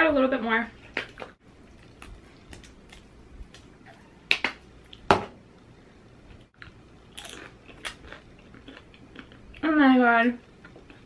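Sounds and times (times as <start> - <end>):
chips snapping and crackling: 6.6 - 9.4.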